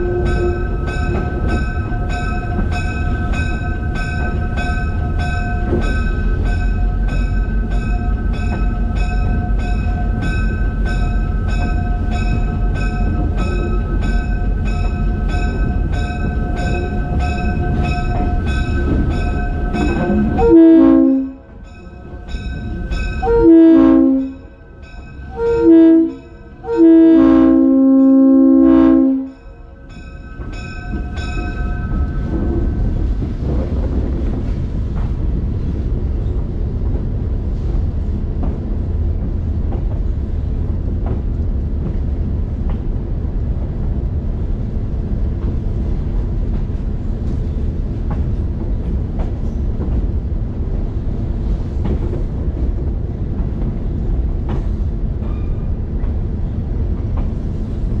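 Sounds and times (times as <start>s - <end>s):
locomotive air horn blasts: 0.0s - 0.8s, 20.0s - 21.4s, 23.2s - 24.4s, 25.3s - 29.4s
locomotive bell ringing: 0.0s - 33.0s
diesel locomotive engine: 0.0s - 58.0s.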